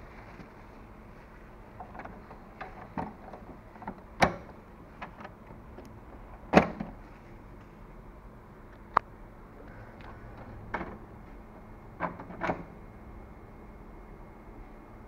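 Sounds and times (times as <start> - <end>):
printer door pushed shut: 3.9 - 4.6, 6.5 - 7.0, 12.0 - 12.7.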